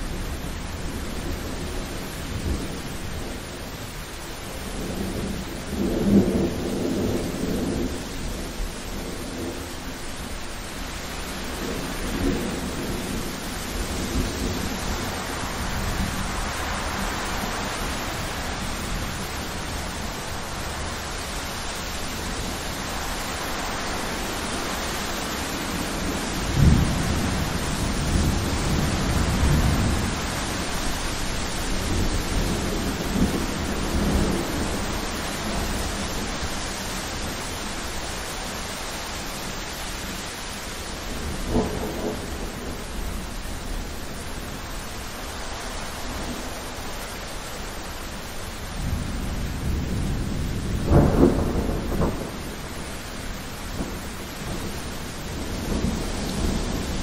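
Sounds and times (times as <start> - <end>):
steady rain: 0.0 - 57.0
rolling thunder: 25.7 - 37.2, 41.0 - 44.7, 48.7 - 57.0
loud thunderclap: 26.5 - 30.3, 41.1 - 42.8, 48.8 - 52.8, 53.7 - 57.0.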